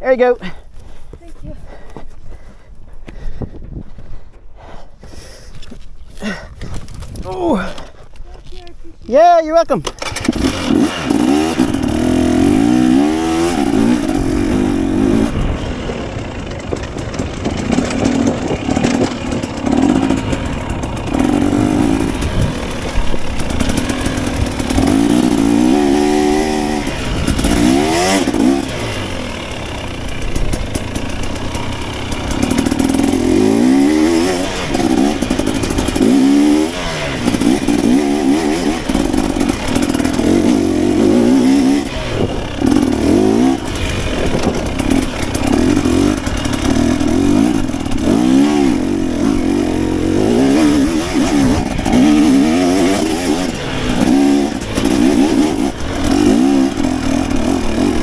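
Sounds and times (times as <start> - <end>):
dirt bike engine revving: 9.6 - 58.0.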